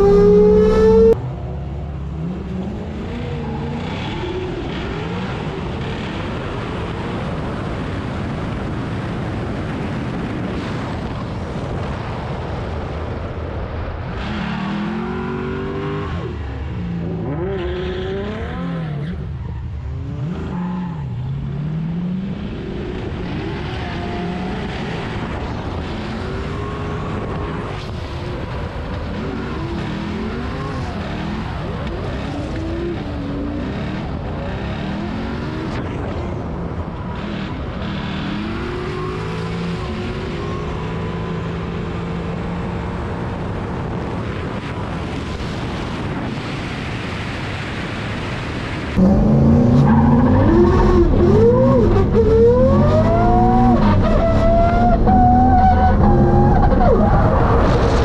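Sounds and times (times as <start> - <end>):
car engine revving: 0.0 - 7.2, 14.0 - 44.0, 48.9 - 58.0
steady rushing noise: 41.1 - 58.0.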